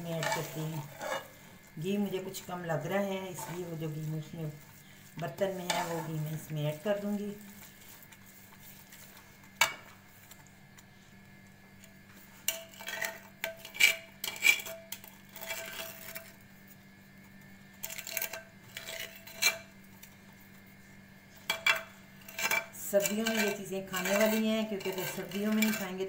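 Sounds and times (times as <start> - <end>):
metal spoons scraping metal pan: 0.0 - 1.4, 3.1 - 4.6, 5.2 - 7.4, 12.4 - 16.4, 17.8 - 19.7, 21.5 - 26.0.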